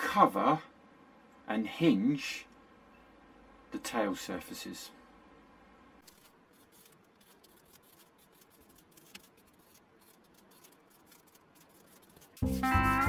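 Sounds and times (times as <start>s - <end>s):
pen scratching on paper: 6.1s - 12.6s.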